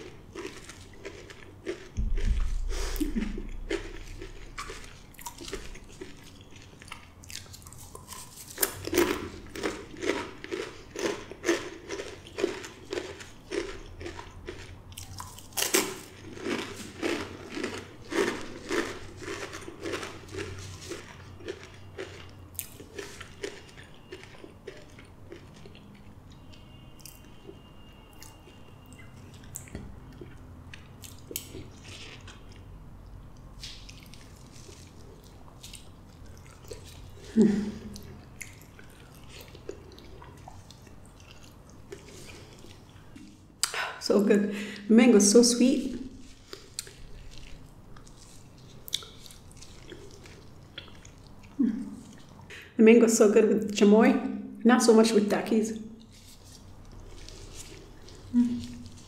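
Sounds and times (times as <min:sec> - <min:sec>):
chips crunching: 0:00.0 - 0:25.8
soft chewing: 0:00.0 - 0:43.8, 0:45.8 - 0:52.6, 0:55.8 - 0:59.0.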